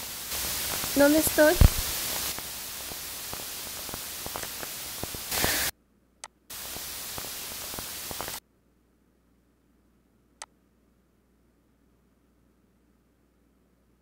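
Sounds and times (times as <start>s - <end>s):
recording hiss: 0.0s - 5.8s, 6.5s - 8.4s.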